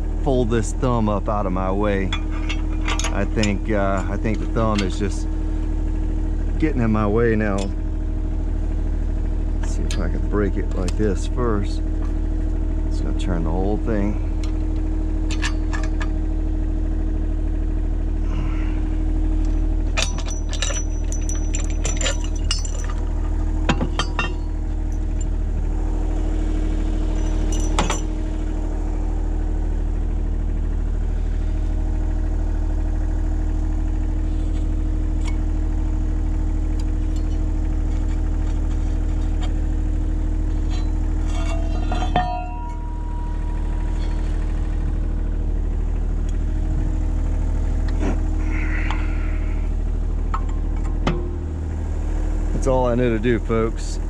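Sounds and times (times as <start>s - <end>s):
excavator diesel engine running: 0.0s - 54.0s
metallic clinks and clanks: 2.1s - 5.0s, 15.3s - 16.2s, 19.5s - 25.4s, 26.8s - 28.2s, 36.8s - 39.7s, 40.4s - 44.8s.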